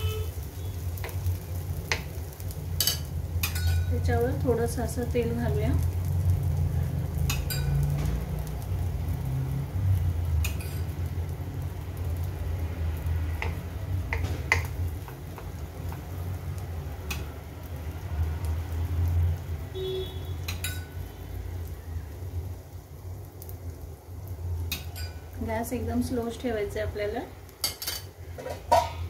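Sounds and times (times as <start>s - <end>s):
spoon clinking on metal: 2.8s - 3.9s.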